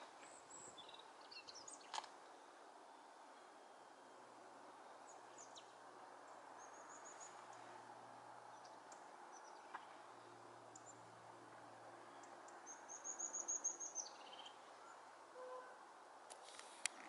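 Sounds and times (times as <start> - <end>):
robin singing: 0.0 - 2.0, 5.0 - 7.7, 12.1 - 15.1
faint outdoor hiss: 0.0 - 17.0.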